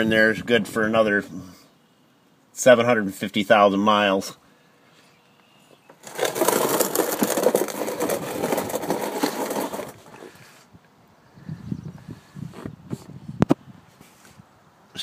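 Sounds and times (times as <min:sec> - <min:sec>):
rough scraping and rustling: 0:05.8 - 0:10.7.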